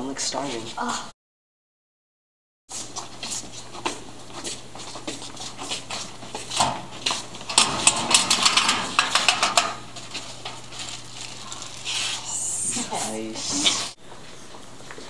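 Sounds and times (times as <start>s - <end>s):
footsteps on hard floor: 2.7s - 7.5s
metal locker door clanking open: 6.5s - 10.6s.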